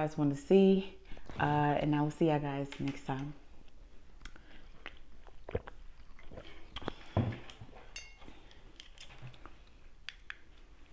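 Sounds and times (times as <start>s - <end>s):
wet mouth clicks: 4.2s - 7.0s
swallowing: 4.2s - 7.6s.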